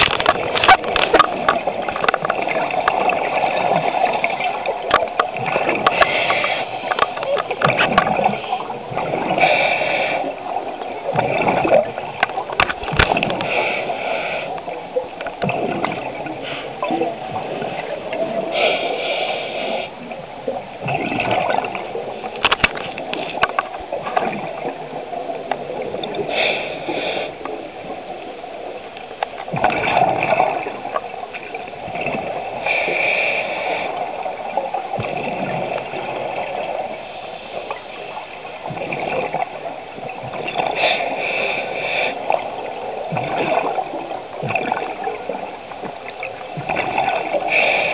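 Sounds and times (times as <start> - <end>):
scuba regulator bubbling underwater: 0.0 - 13.6, 14.6 - 18.6, 20.0 - 26.3, 29.4 - 32.7, 33.9 - 37.0, 37.6 - 47.7
hissing breaths: 9.4 - 10.4, 13.4 - 14.8, 18.5 - 20.1, 26.2 - 27.5, 32.6 - 34.2, 40.7 - 42.5.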